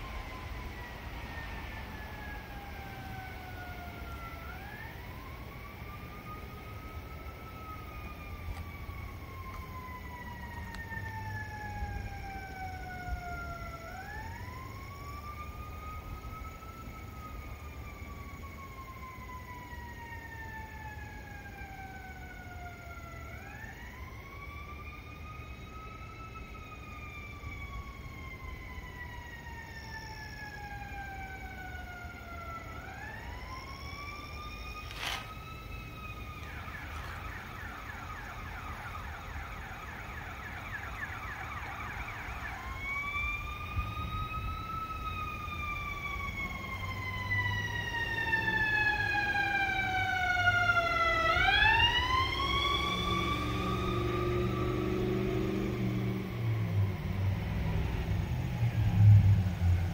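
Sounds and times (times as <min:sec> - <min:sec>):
emergency siren wailing and yelping: 0:00.0 - 0:59.9
low vehicle rumble: 0:52.0 - 0:59.9.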